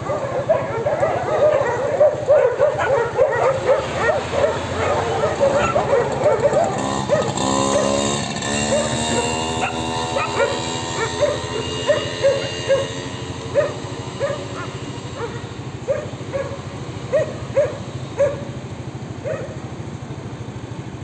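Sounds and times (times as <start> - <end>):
dogs barking: 0.0 - 19.7
vehicle engine rumble: 0.0 - 21.0.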